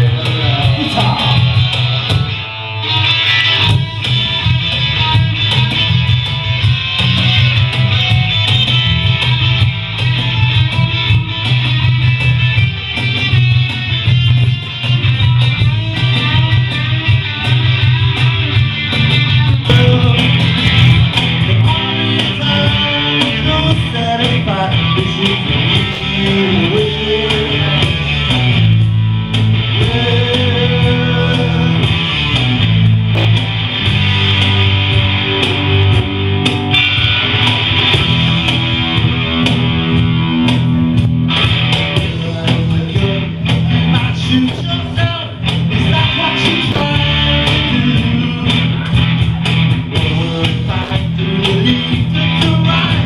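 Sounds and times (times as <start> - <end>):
man singing: 0.0 - 2.0, 19.6 - 20.8, 21.4 - 28.3, 29.6 - 32.2, 41.9 - 49.0, 49.8 - 53.0
bass line: 0.0 - 53.0
strummed electric guitar: 0.0 - 53.0.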